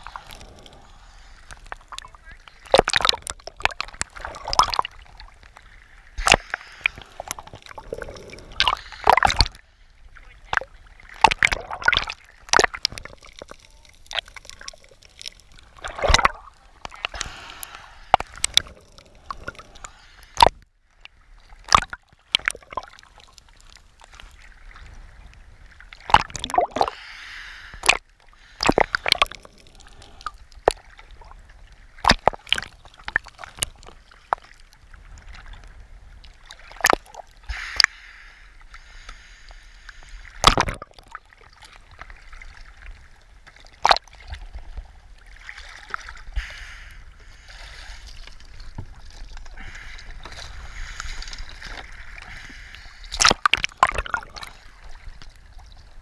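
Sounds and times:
water bubbling: 0:00.0 - 0:20.5, 0:24.6 - 0:27.0, 0:27.8 - 0:34.5, 0:48.0 - 0:56.0
sea water sloshing and splashing: 0:00.0 - 0:56.0.

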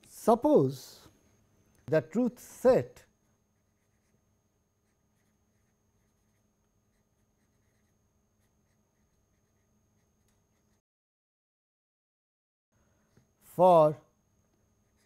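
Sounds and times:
felt-tip marker scratching on paper: 0:03.5 - 0:10.8.

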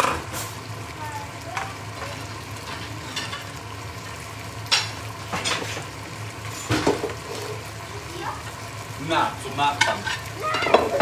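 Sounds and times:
food sizzling in a frying pan: 0:00.0 - 0:11.0
plates and dishes clattering: 0:04.7 - 0:05.9, 0:06.5 - 0:07.5, 0:09.8 - 0:11.0.

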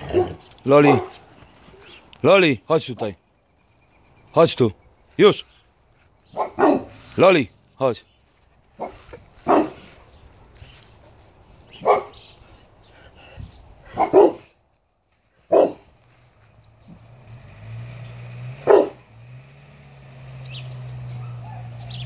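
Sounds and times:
dog barking: 0:00.0 - 0:01.2, 0:06.3 - 0:07.0, 0:08.8 - 0:10.0, 0:11.8 - 0:12.2, 0:13.9 - 0:14.5, 0:15.5 - 0:15.9, 0:18.6 - 0:19.0, 0:21.1 - 0:22.0.

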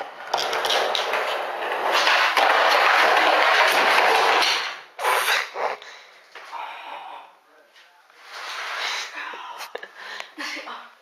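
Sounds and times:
skateboard wheels rolling on concrete: 0:00.0 - 0:05.0.

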